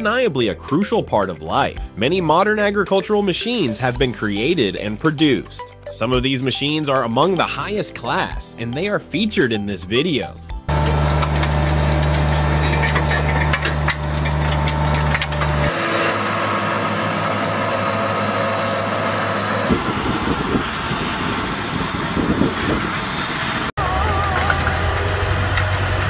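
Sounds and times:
loader engine humming: 0:10.3 - 0:26.0
engine running: 0:10.5 - 0:26.0
tractor pulling seed drill rattling: 0:10.7 - 0:19.7.

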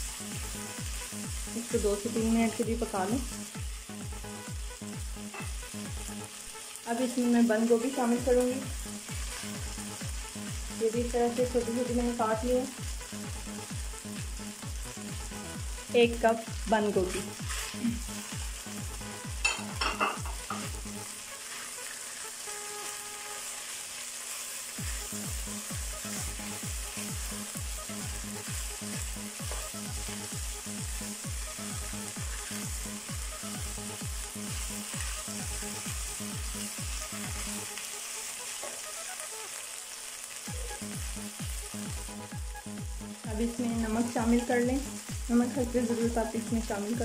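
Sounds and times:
vegetables sizzling in oil: 0:00.0 - 0:47.0
regular low beat: 0:40.5 - 0:44.0.

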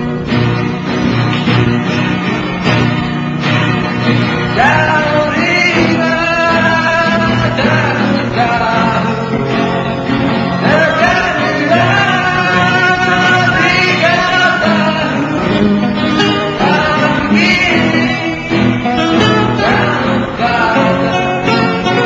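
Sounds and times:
bass: 0:00.0 - 0:22.0
drums: 0:00.0 - 0:22.0
guitar: 0:00.0 - 0:22.0
person singing: 0:04.4 - 0:22.0.

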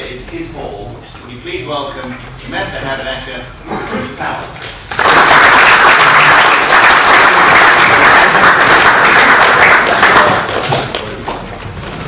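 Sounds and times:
audience applauding: 0:04.9 - 0:11.5.

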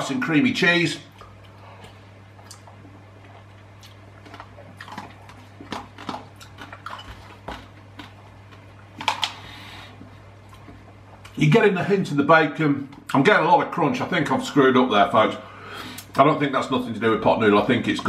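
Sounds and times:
chewing: 0:01.1 - 0:11.4.

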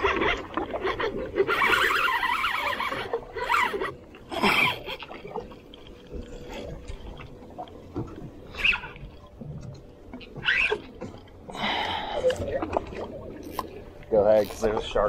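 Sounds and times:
fishing reel drag buzzing: 0:00.0 - 0:04.0.

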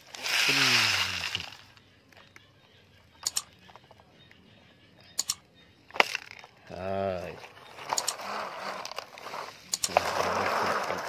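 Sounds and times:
computer mouse clicks: 0:03.2 - 0:03.5, 0:05.2 - 0:05.4.

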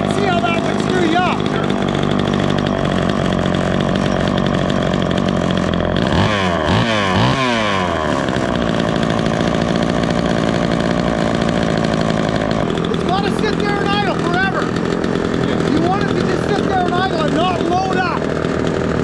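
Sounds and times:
chainsaw revving: 0:00.0 - 0:19.0.

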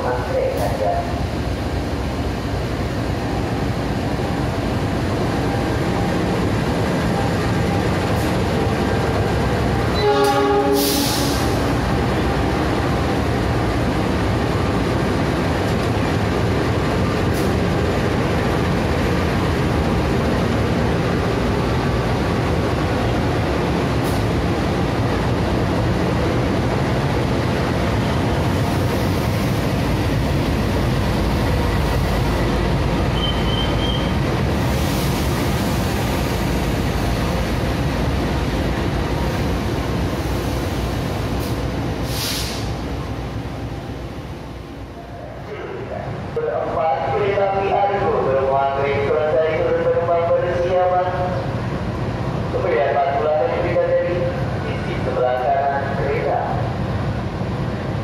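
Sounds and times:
diesel locomotives running: 0:00.0 - 0:58.0
train horn blast: 0:09.9 - 0:11.2
air hiss: 0:40.2 - 0:42.8.

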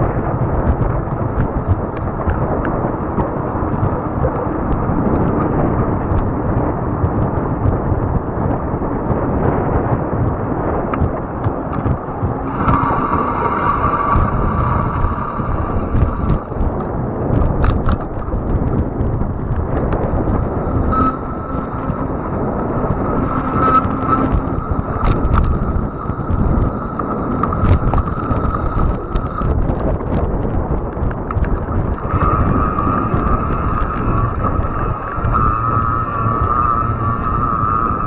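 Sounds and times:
tyres rumbling: 0:00.0 - 0:38.0
wind buffeting microphone: 0:00.0 - 0:38.0
sharp ticks: 0:00.4 - 0:38.0
electric motor whine: 0:20.4 - 0:28.7, 0:32.0 - 0:38.0.

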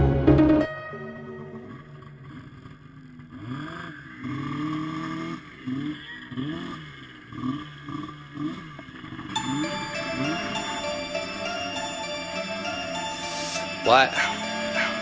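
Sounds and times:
snowmobile engine revving: 0:03.3 - 0:15.0.

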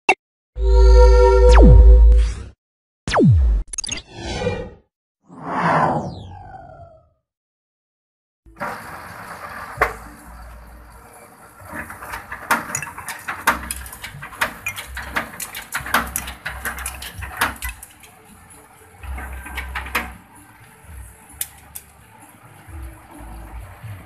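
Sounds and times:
bamboo shaving machine clicking: 0:11.7 - 0:18.4, 0:19.0 - 0:22.0.

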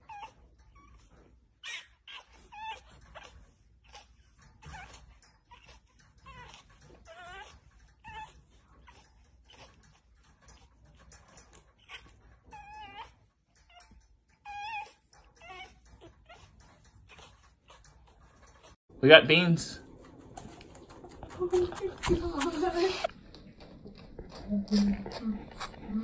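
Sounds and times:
puppy whining: 0:00.0 - 0:18.8.

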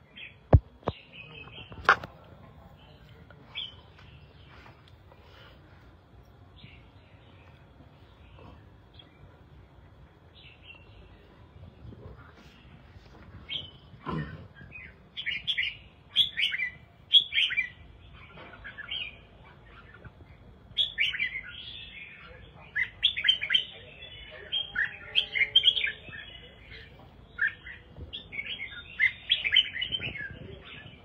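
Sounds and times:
bird singing warbling phrases: 0:06.6 - 0:31.0.

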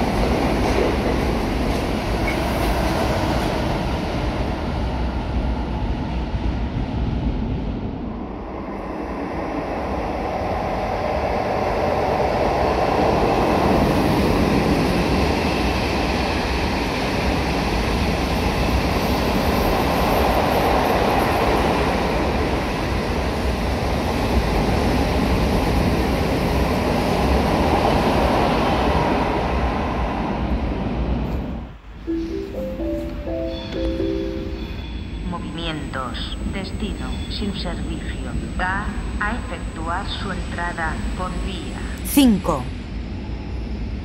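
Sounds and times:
train wheels rumbling on rails: 0:00.0 - 0:08.0.

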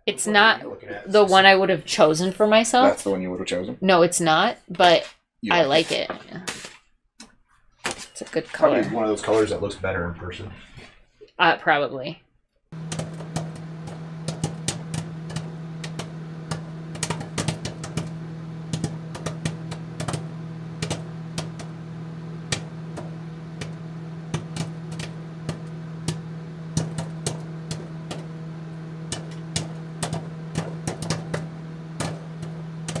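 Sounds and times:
crackle clicks and pops: 0:12.8 - 0:33.0
low hum: 0:12.8 - 0:33.0.

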